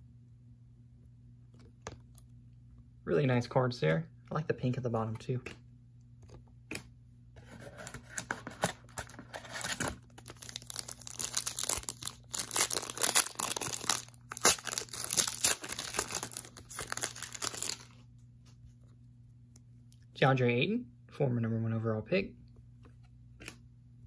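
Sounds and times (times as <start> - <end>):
wrapper tearing and crinkling: 7.9 - 18.0.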